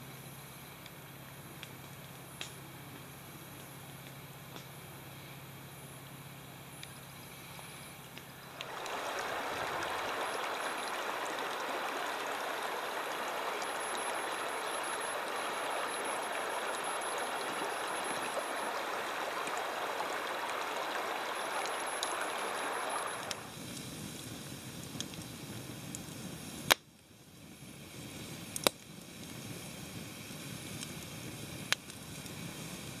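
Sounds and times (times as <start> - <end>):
wood campfire crackling: 0.3 - 5.6, 6.6 - 33.0
water rushing over rocks: 8.6 - 23.5.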